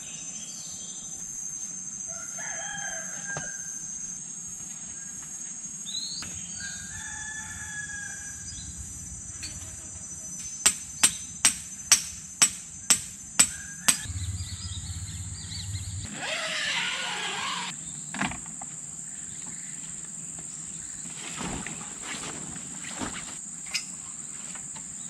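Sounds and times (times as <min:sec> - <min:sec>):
high insect drone: 0:00.0 - 0:25.0
hammer striking tent stake: 0:10.6 - 0:14.1.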